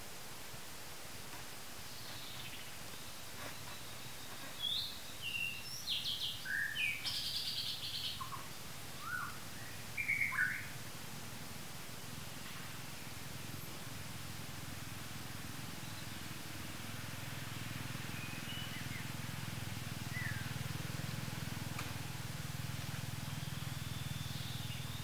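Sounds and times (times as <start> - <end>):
steady background hiss: 0.0 - 25.0
birds chirping and whistling: 1.9 - 10.8, 15.8 - 16.3, 17.5 - 19.2, 20.0 - 21.4, 23.1 - 25.0.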